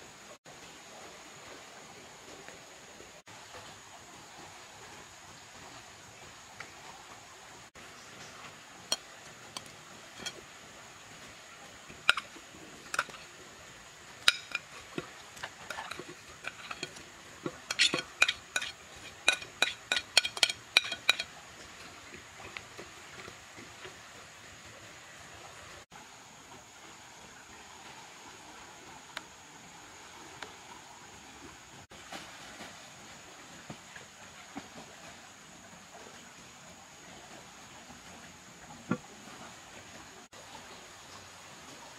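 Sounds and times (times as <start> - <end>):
faint steady hiss: 0.0 - 41.9
metal spoon scraping a plate: 9.6 - 10.4, 12.0 - 13.3, 14.2 - 14.8, 15.4 - 21.3.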